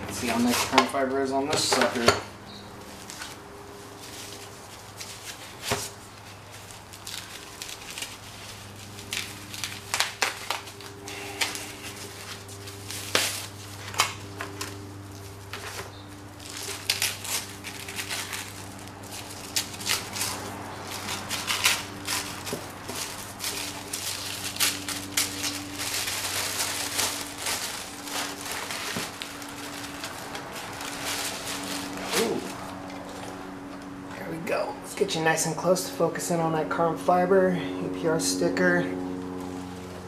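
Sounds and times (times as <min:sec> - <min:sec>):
steady low hum: 0:00.0 - 0:40.0
paper and plastic crinkling: 0:02.8 - 0:33.4.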